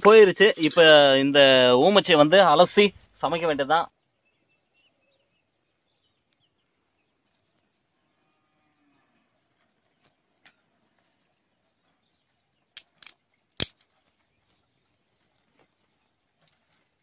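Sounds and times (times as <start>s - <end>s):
dry twigs snapping: 12.7s - 13.9s.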